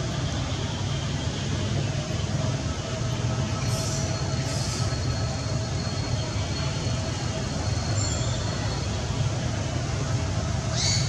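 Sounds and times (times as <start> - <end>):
high hissing bursts: 3.6 - 5.0.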